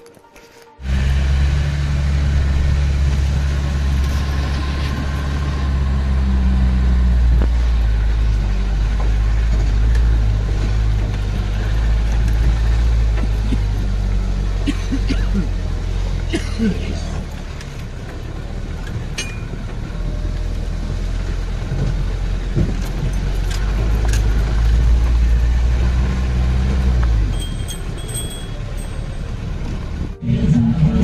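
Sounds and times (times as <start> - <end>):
engine drone inside a vehicle: 0.8 - 31.0.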